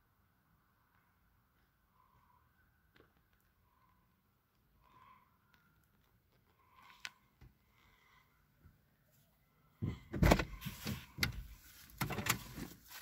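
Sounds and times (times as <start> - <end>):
car door: 9.8 - 12.7
bumps and rustling: 9.8 - 13.0.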